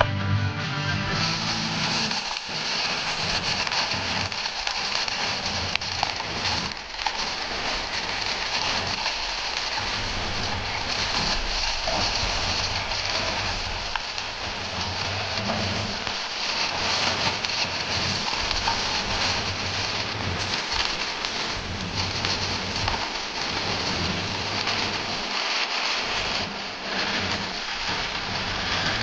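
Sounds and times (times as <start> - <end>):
waterfall rushing: 1.1 - 24.2.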